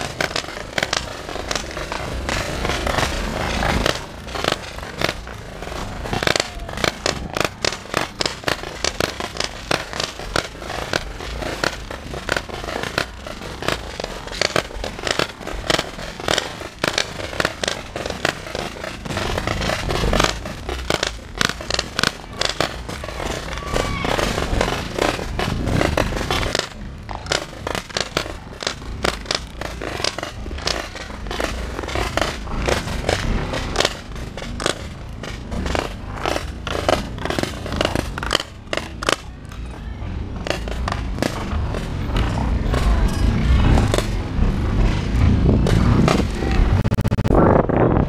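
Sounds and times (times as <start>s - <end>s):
paintball markers firing: 0.0s - 39.8s
low rumble: 39.8s - 48.0s.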